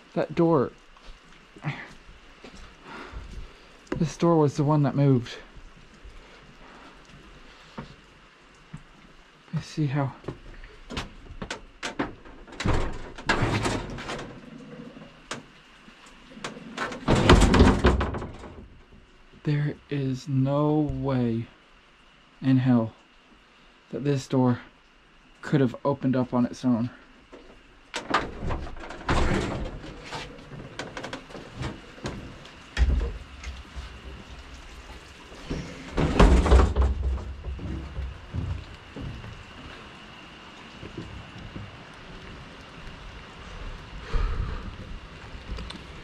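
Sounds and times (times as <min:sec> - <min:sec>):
metal door scraping and clattering: 0:12.1 - 0:15.0, 0:16.4 - 0:18.6, 0:28.0 - 0:34.0, 0:35.4 - 0:38.2
heavy door thump: 0:17.0 - 0:18.7, 0:35.5 - 0:39.2.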